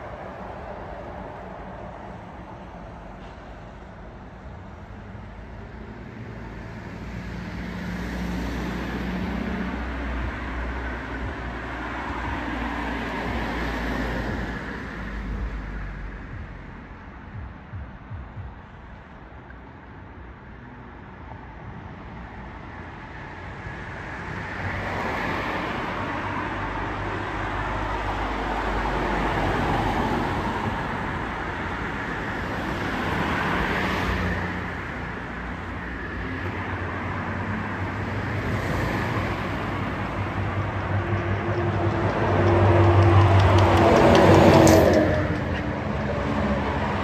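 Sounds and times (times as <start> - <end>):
vehicles driving past: 0.0 - 47.0
heavy engine low drone: 25.7 - 47.0.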